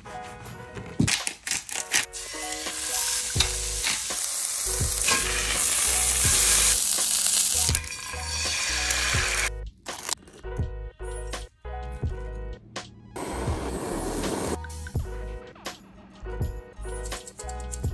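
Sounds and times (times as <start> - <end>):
food sizzling in a skillet: 2.2 - 9.5
background music with bass beat: 13.4 - 17.9.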